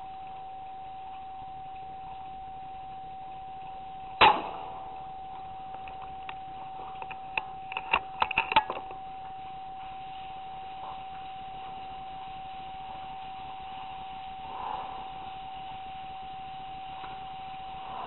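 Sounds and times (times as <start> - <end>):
high electronic whine: 0.0 - 18.0
rifle shot: 4.2 - 4.9.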